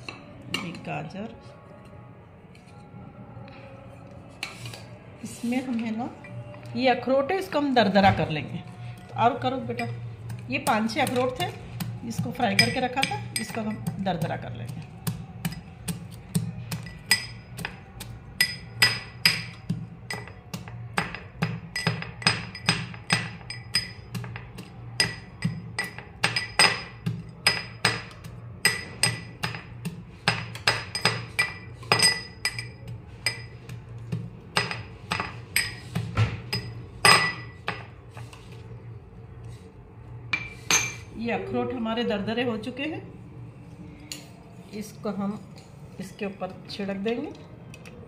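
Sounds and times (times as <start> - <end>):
metal pestle pounding in mortar: 10.6 - 37.8.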